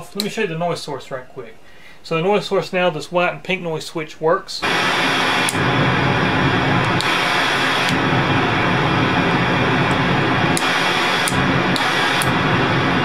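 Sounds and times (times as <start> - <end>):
synthesizer noise hiss: 4.6 - 13.0
small switch clicks: 10.6 - 12.4.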